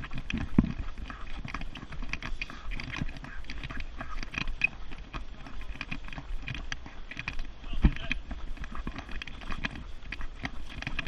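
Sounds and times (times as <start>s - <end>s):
pushed cart rattling: 0.0s - 11.0s
running footsteps: 0.0s - 11.0s.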